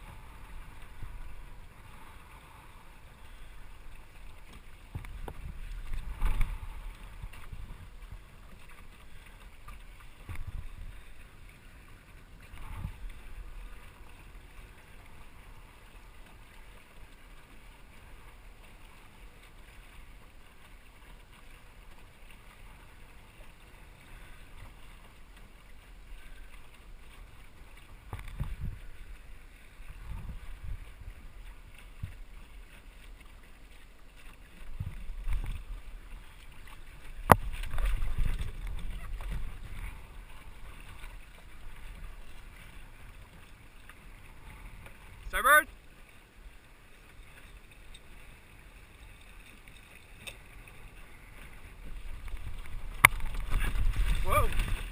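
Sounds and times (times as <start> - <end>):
water washing along a hull: 0.0 - 54.9
wind rumble on microphone: 4.8 - 8.7, 12.4 - 14.4, 28.0 - 32.4, 34.5 - 43.4, 51.3 - 54.9.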